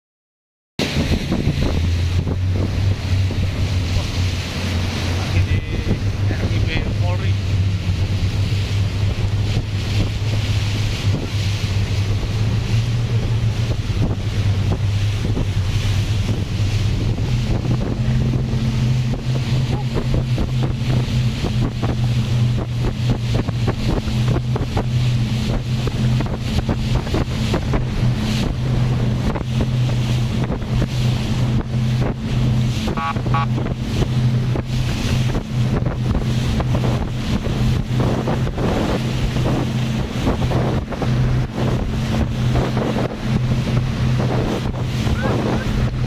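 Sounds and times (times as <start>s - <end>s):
boat engine drone: 0.8s - 46.0s
water rushing past hull: 0.8s - 46.0s
wind buffeting microphone: 0.8s - 46.0s.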